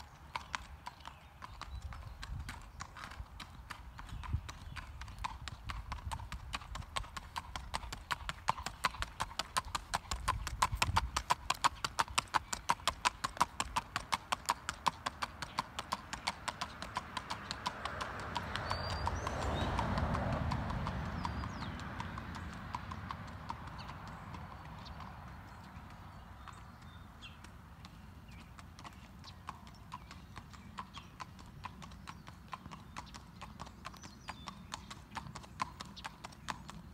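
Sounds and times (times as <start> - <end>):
horse hooves clip-clopping: 0.0 - 36.9.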